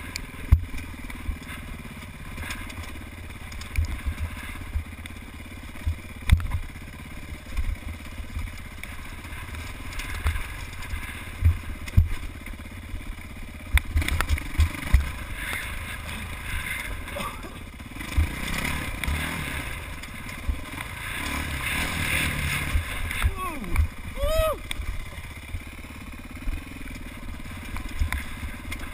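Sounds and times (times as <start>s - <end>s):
dirt bike engine running: 0.0s - 28.9s
bike knocking over rocks: 7.4s - 12.6s, 13.6s - 25.2s.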